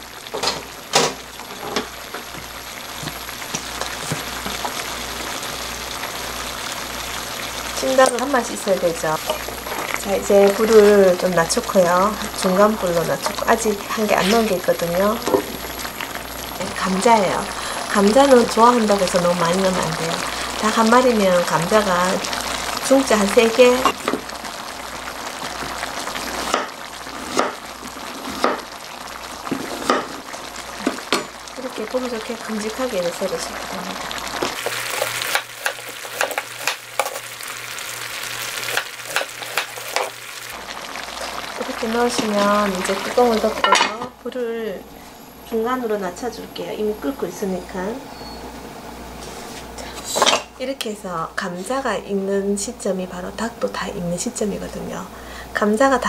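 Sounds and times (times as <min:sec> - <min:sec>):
chicken sizzling in a pan: 0:00.0 - 0:43.9.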